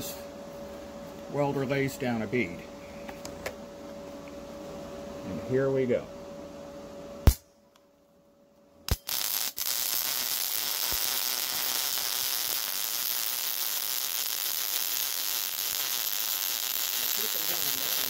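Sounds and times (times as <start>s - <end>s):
welding arc striking: 7.2s - 7.5s, 8.9s - 18.0s
welding arc sizzling: 8.9s - 18.0s.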